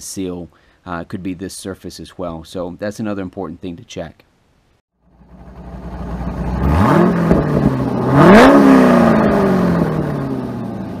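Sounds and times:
car engine revving: 5.1 - 11.0.

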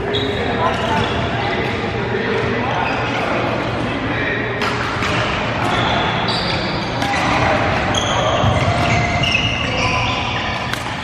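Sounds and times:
shoes squeaking on court floor: 0.0 - 1.8, 5.0 - 11.0
players chattering: 0.0 - 11.0
rackets hitting shuttlecock: 10.5 - 11.0.

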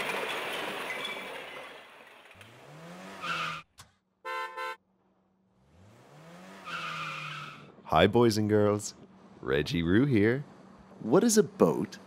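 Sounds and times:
tyre skid: 0.0 - 3.6
car engine revving: 2.3 - 3.7, 5.4 - 11.0
car horn toots: 4.2 - 4.8.

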